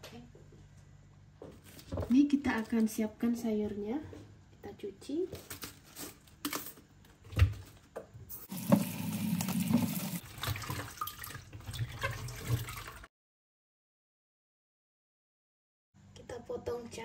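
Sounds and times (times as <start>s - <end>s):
tap running into plastic bowl: 8.5s - 10.1s.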